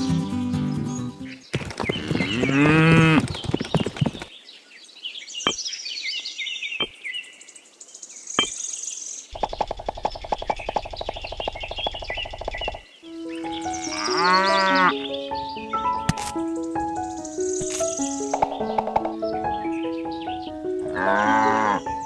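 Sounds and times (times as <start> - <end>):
small birds chirping: 0.0 - 22.0
sharp clicks: 9.4 - 12.8
cow mooing: 13.9 - 14.9, 20.9 - 22.0.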